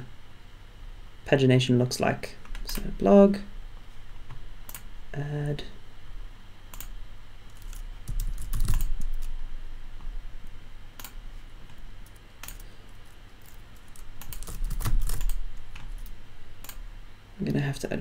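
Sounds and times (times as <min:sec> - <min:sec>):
keyboard typing: 0:07.5 - 0:09.3, 0:11.0 - 0:16.8.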